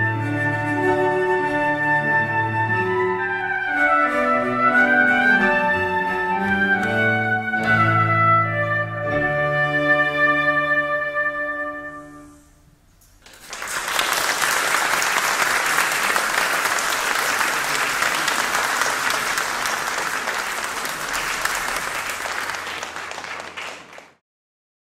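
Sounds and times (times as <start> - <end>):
audience applause: 13.2 - 24.2.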